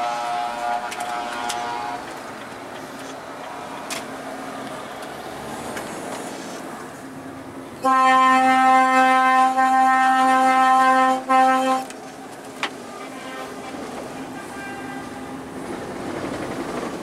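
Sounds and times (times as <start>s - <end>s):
truck air horn blasts: 0.0s - 2.0s, 7.8s - 11.9s, 12.9s - 15.3s.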